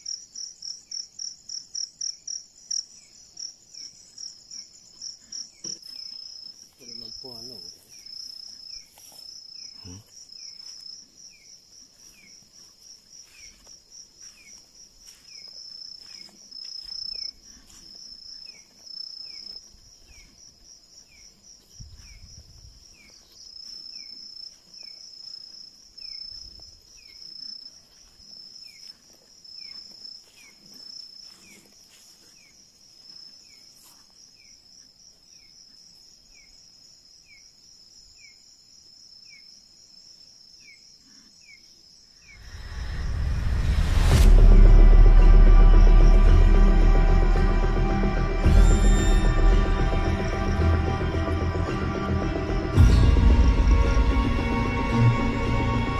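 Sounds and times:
cricket trill: 0.0s - 55.9s
low thuds: 42.4s - 55.1s.

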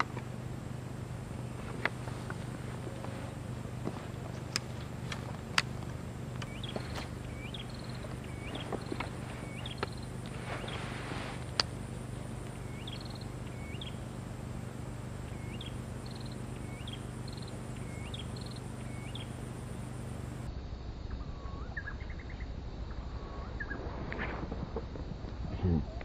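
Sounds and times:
steady low hum: 0.0s - 26.0s
bird whistling with trill: 6.4s - 10.9s, 12.6s - 14.0s, 15.3s - 19.3s.

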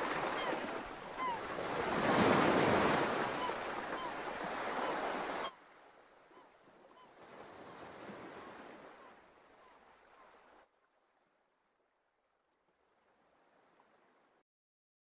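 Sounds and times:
sea noise: 0.0s - 11.9s
faint wind: 0.0s - 14.4s.

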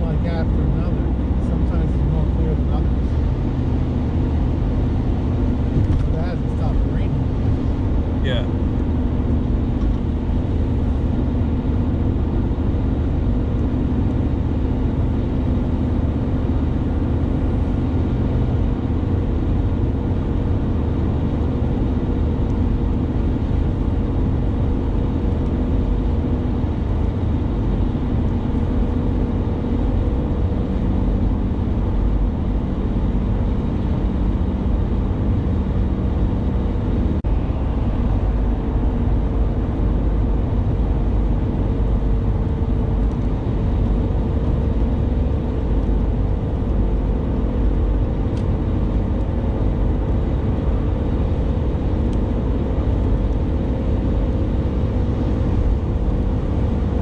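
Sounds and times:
vehicle engine and tyre noise: 0.0s - 57.0s.

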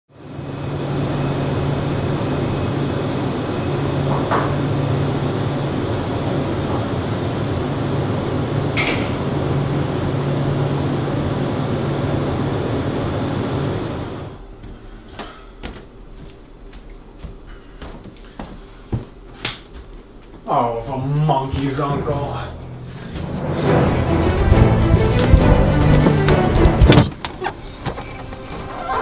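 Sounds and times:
steady hum and hiss: 0.2s - 29.0s.

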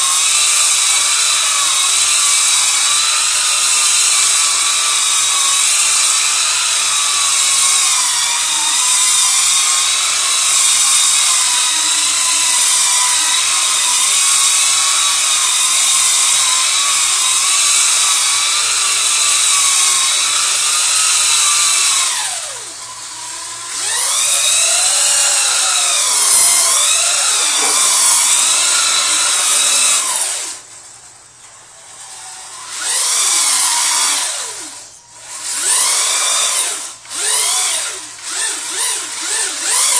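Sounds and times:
rc truck motor and gear whine: 0.0s - 39.9s.

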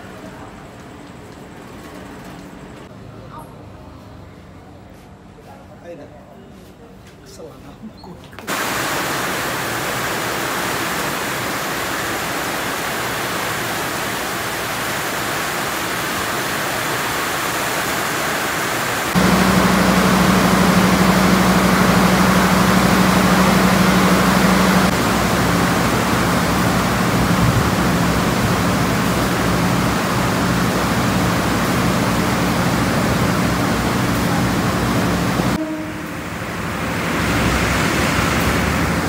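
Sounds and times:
heavy rain pouring: 8.5s - 35.6s, 36.2s - 39.0s
diesel locomotive engine idling: 19.0s - 39.0s.

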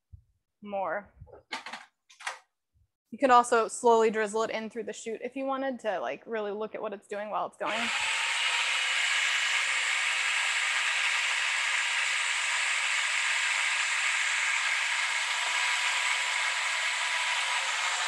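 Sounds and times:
food processor whirring: 7.6s - 18.0s.

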